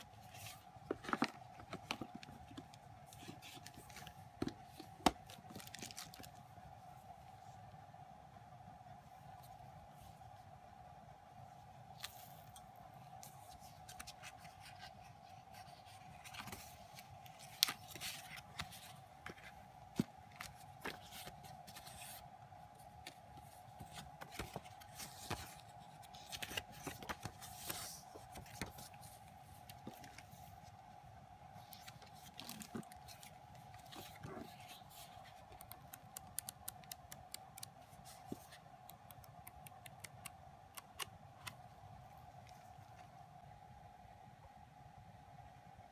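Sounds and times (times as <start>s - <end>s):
photobook pages rustling and turning: 0.0s - 6.5s, 11.9s - 30.8s, 31.5s - 40.2s
faint steady hum: 0.0s - 45.9s.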